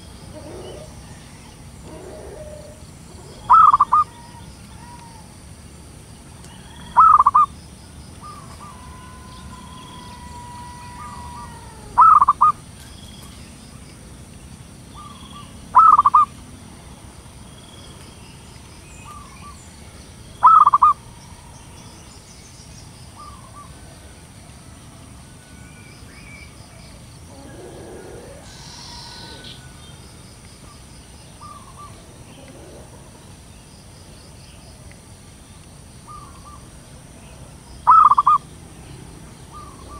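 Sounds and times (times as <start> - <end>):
dove cooing: 0.0 - 5.3, 6.6 - 7.5, 8.2 - 12.6, 15.0 - 16.3, 20.4 - 21.5, 27.3 - 29.7, 31.4 - 33.2, 37.8 - 38.4, 39.5 - 39.9.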